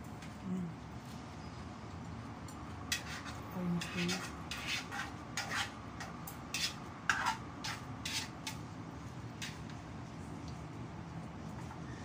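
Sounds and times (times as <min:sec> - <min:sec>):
utensil tossing salad in bowl: 0:02.9 - 0:09.9.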